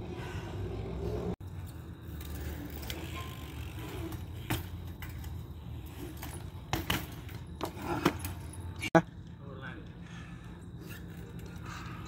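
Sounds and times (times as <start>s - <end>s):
bike tyres rumbling on concrete: 0.0s - 12.0s
bike metallic rattle: 0.9s - 9.0s
bike knocking on concrete steps: 6.2s - 8.5s.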